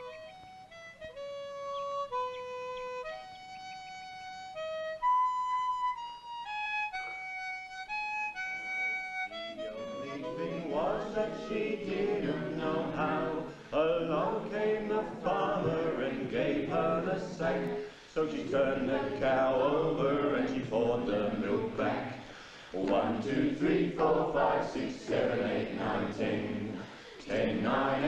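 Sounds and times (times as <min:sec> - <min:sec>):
slow wind instrument tune: 0:00.0 - 0:13.7
group of boys and men singing: 0:09.8 - 0:28.0.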